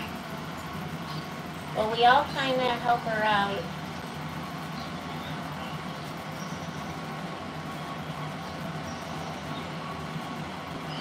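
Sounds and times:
appliance hum and hiss: 0.0 - 11.0.

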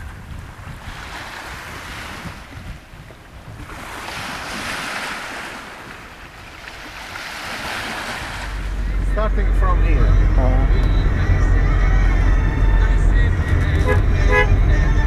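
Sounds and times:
small waves washing onto stony shore: 0.0 - 9.2
wind buffeting microphone: 0.0 - 15.0
low steady rumble: 8.3 - 15.0.

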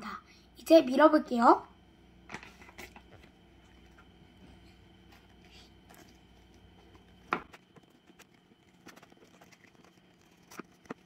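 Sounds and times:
rolling pin rolling: 2.3 - 11.0.

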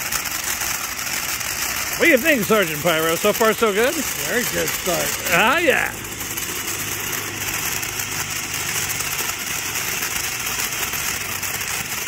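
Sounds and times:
firework fountain hissing: 0.0 - 12.0.

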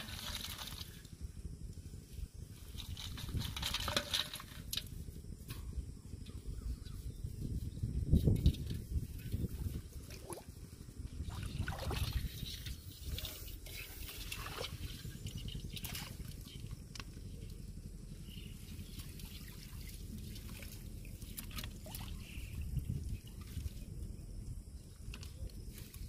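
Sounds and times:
light splashes and clicks: 19.0 - 22.3.

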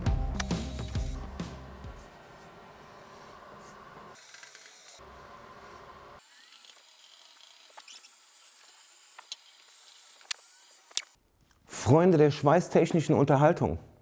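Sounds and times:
background music: 0.0 - 2.1.

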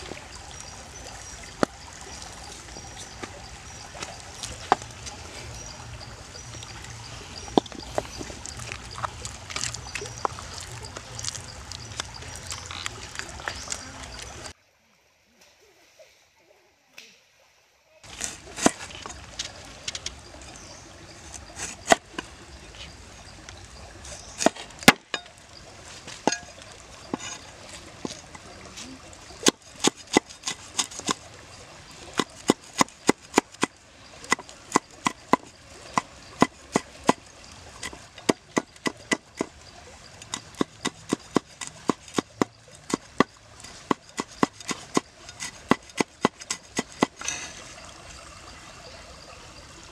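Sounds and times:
cleaver chopping on wooden board: 32.2 - 33.7, 37.8 - 39.5, 40.3 - 43.3, 43.9 - 47.2
pestle pounding and grinding: 32.2 - 37.2, 37.8 - 39.5, 40.3 - 47.4.

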